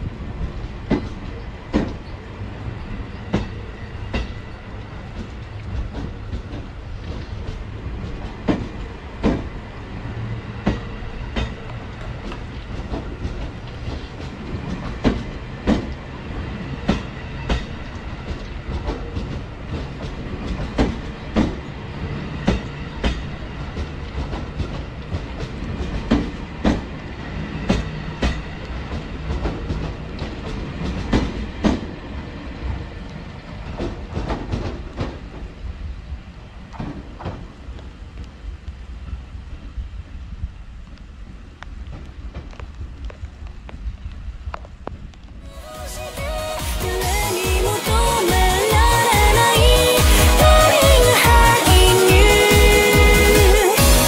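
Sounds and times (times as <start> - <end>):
train wheels clacking over rail joints: 0.4 - 35.7, 36.6 - 38.4.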